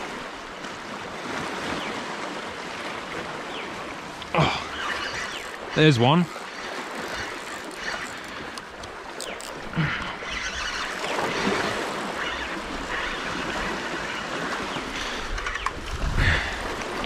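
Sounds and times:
waves sloshing: 0.0 - 17.0
faint clicks: 6.3 - 11.2
wind on microphone: 14.8 - 17.0.

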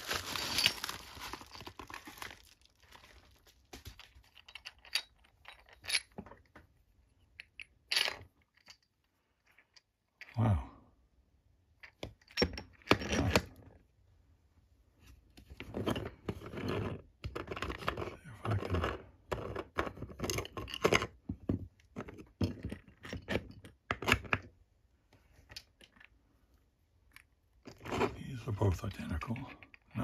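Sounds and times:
plastic parts scraping and clacking: 15.4 - 24.5, 27.2 - 29.9.

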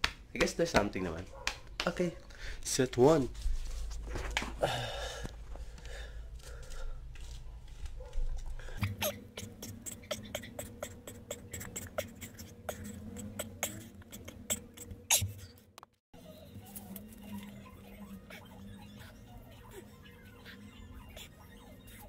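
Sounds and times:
sharp breath puffs: 2.2 - 2.7, 8.5 - 15.5
steady low hum: 2.3 - 15.6, 16.2 - 22.0.

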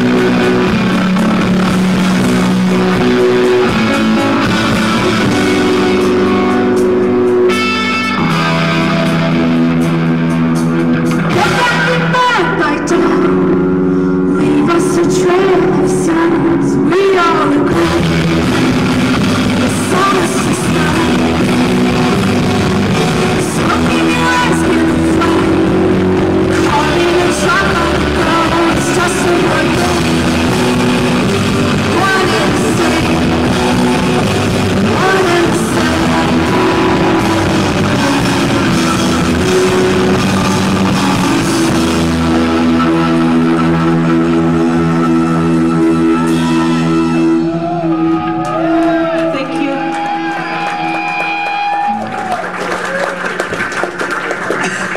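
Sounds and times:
drums: 0.0 - 54.9
electric guitar: 0.0 - 54.9
person singing: 11.1 - 49.8.

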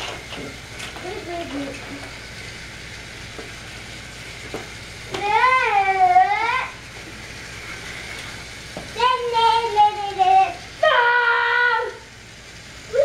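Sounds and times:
child singing long wordless notes: 9.0 - 12.0.

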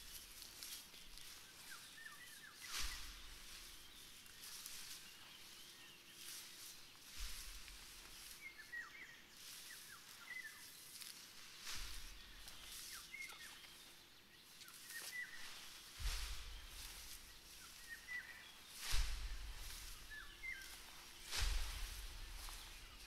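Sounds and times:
small birds chirping: 0.0 - 23.0
wind rush with low rumble: 16.0 - 23.0.

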